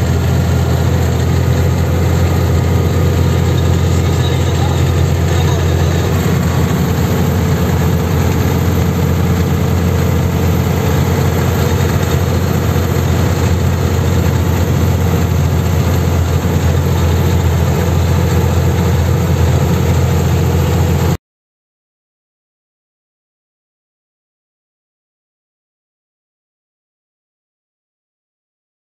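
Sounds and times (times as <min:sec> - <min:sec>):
road noise: 0:00.0 - 0:21.2
truck diesel engine rumble: 0:00.0 - 0:21.2.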